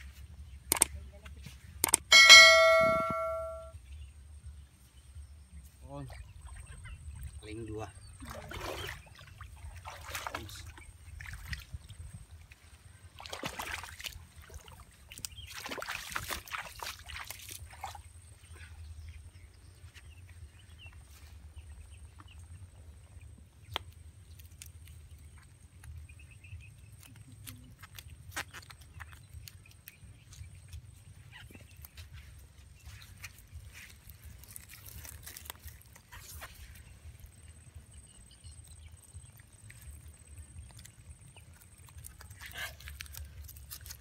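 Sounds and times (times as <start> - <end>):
mud squelches: 6.1 - 44.0
feet sloshing through water: 8.1 - 19.3.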